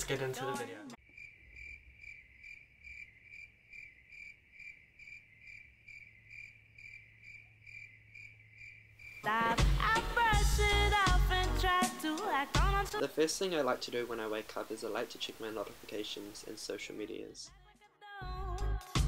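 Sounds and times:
cricket chirping: 1.0 - 9.3.

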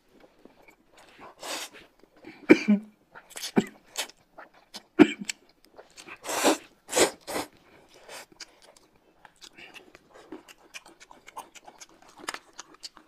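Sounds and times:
biting and chewing: 3.1 - 13.0
noodles being slurped: 3.2 - 13.0.

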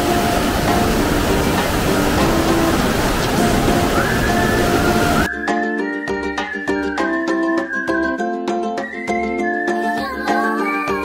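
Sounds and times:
water rushing in a stream: 0.0 - 5.3, 9.8 - 11.0
music with high held melody: 0.0 - 11.0.

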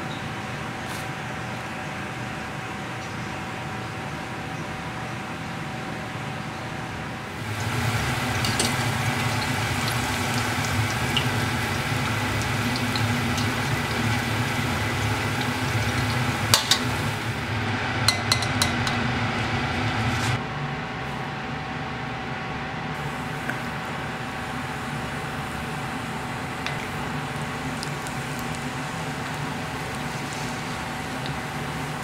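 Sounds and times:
food sizzling in oil: 7.3 - 17.5, 24.5 - 32.0
metal strainer knocking on pot: 18.1 - 19.0.

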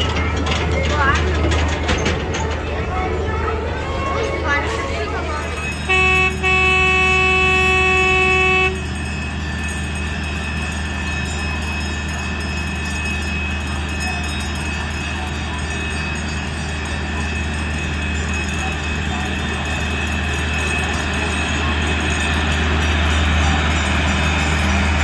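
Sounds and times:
train running drone: 0.0 - 25.0
miniature train horn tooting: 5.6 - 9.1.

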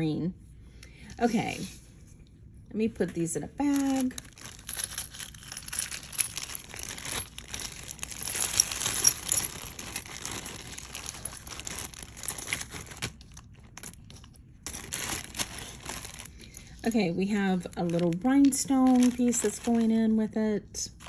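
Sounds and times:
plastic bag crinkling: 3.6 - 20.2
metal jewelry clinking: 3.8 - 13.0.

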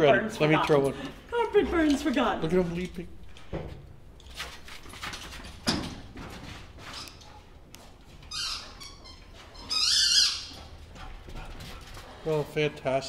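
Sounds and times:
squeaky dog toy squeaking: 8.3 - 10.5.

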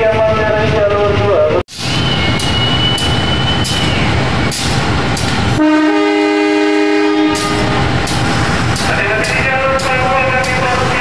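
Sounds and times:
train rumble: 0.0 - 11.0
diesel locomotive horn: 5.6 - 7.9.

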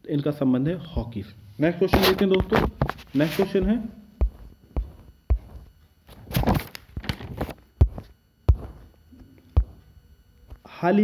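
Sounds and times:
sharp thumps: 1.9 - 9.0, 9.6 - 9.9.

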